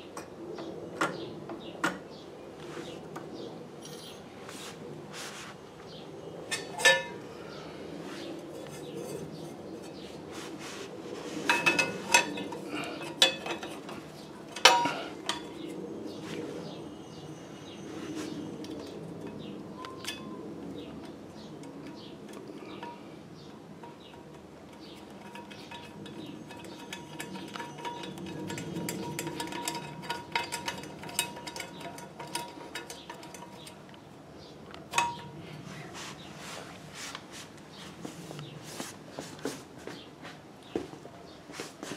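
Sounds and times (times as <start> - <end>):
metal parts clanking: 6.5 - 7.2, 11.5 - 15.6, 23.8 - 33.8.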